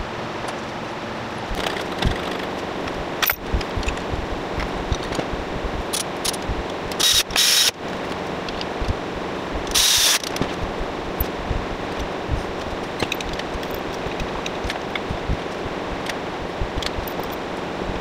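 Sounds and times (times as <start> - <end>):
steady hiss: 1.5 - 18.0
short loud bursts of hiss: 7.0 - 7.7, 9.7 - 10.8.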